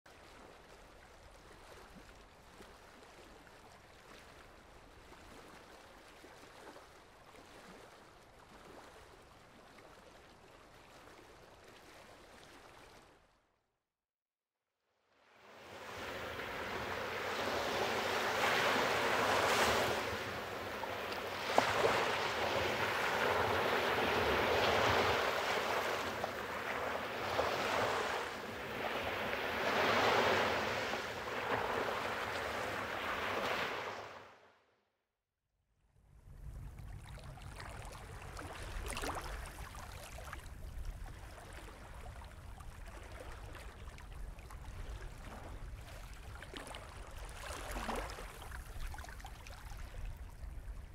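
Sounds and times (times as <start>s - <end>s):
water lapping: 0.1s - 13.4s, 15.8s - 34.1s, 36.4s - 50.9s
waves washing in: 15.2s - 34.5s, 36.5s - 50.9s.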